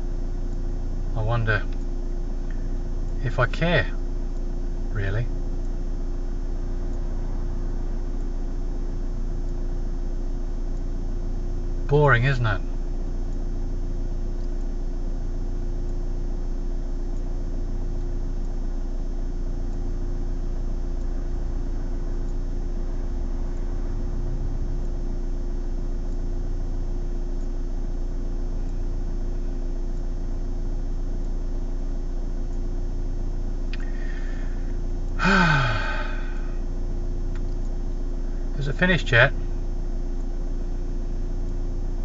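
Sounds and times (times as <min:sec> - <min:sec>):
car engine idling: 0:00.0 - 0:15.4, 0:19.9 - 0:31.9, 0:33.5 - 0:39.9
man making short vocal sound: 0:35.2 - 0:36.6.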